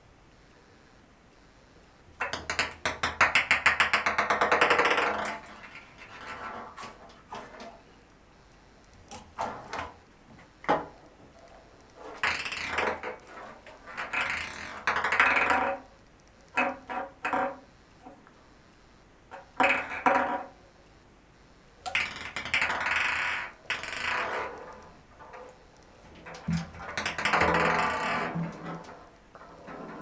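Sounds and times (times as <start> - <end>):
ping pong ball bouncing in bathtub: 2.2 - 5.5.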